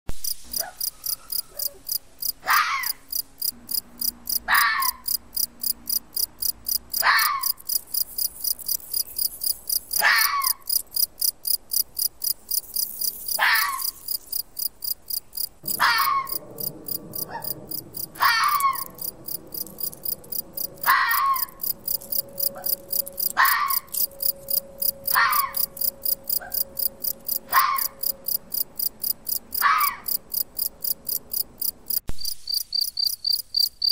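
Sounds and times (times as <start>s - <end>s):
crickets chirping: 0.2s - 33.9s
fox barking: 0.6s - 3.0s, 4.4s - 5.2s, 7.0s - 7.7s, 10.0s - 10.7s, 13.4s - 14.0s, 15.6s - 24.2s, 25.0s - 28.3s, 29.5s - 30.2s
rustling in dry ground litter: 12.4s - 14.4s.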